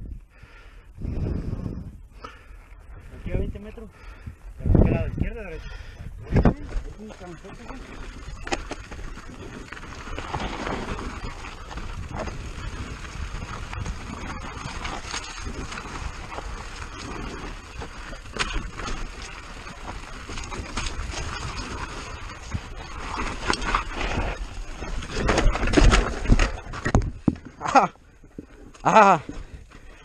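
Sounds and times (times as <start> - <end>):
wind buffeting microphone: 0.9 - 2.2, 2.8 - 27.5
bike rattling: 5.0 - 30.0
tyres rumbling on gravel: 6.2 - 30.0.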